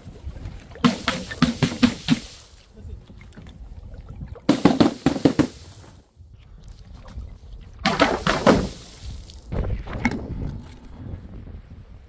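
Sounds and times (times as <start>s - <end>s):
steady low rumble: 9.4s - 12.0s.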